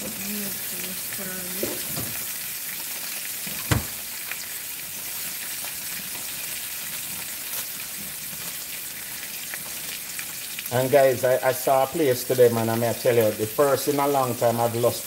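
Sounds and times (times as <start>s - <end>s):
food sizzling in pans: 0.0s - 15.0s.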